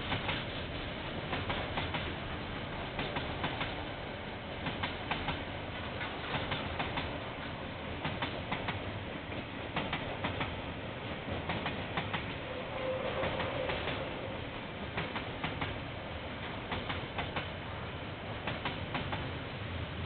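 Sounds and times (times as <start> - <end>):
freight train rumbling past: 0.0 - 20.0
wheels clicking over rail joints: 4.6 - 12.5, 16.4 - 17.6, 18.4 - 19.4.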